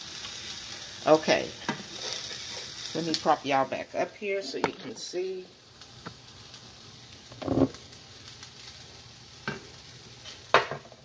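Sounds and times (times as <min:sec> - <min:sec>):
vegetables sizzling in oil: 0:00.0 - 0:11.0
kitchen knocks and clatters: 0:07.4 - 0:07.8, 0:10.5 - 0:11.0.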